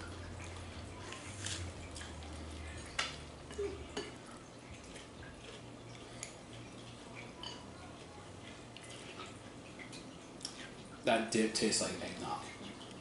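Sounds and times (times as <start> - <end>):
light clicks and knocks of eating: 0.0 - 11.0
low steady hum: 0.0 - 13.0.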